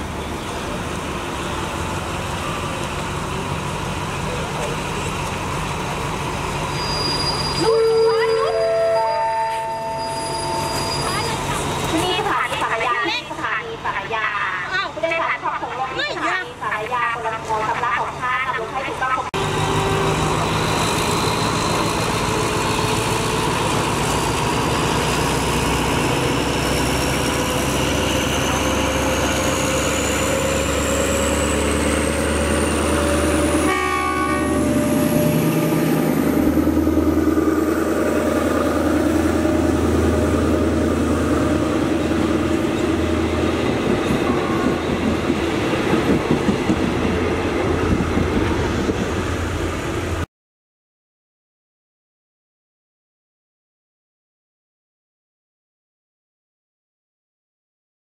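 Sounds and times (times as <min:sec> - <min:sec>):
diesel locomotive engine running: 0:00.0 - 0:50.2
train horn blast: 0:07.6 - 0:11.1, 0:33.5 - 0:35.8.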